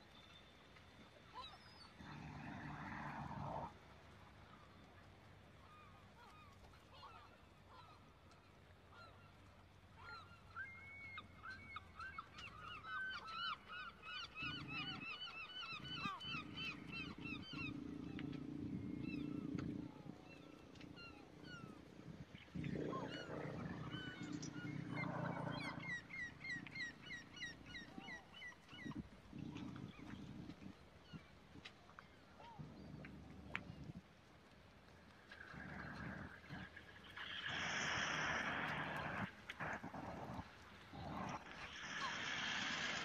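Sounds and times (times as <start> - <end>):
birds chirping: 10.0 - 31.3.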